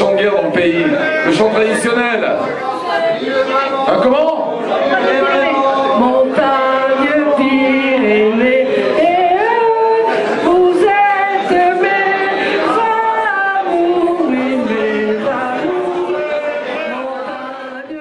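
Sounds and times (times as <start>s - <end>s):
men and women singing unaccompanied: 4.6s - 18.0s.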